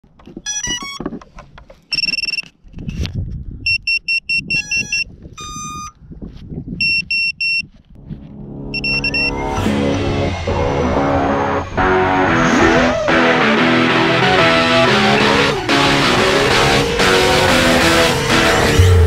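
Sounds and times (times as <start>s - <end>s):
high-pitched electronic beeps: 8.5s - 12.9s
multi-tone electronic chirps: 8.6s - 9.7s.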